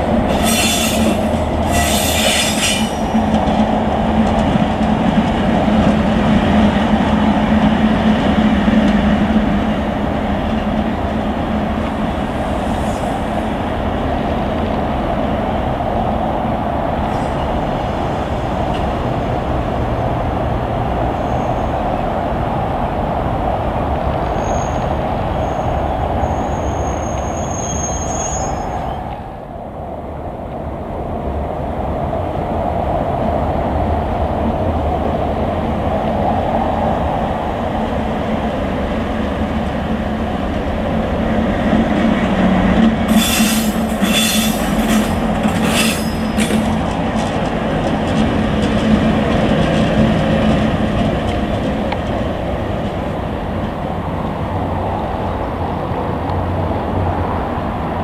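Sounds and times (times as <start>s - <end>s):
wheel squeals on rails: 0.3s - 3.2s, 24.3s - 29.0s, 43.1s - 46.8s.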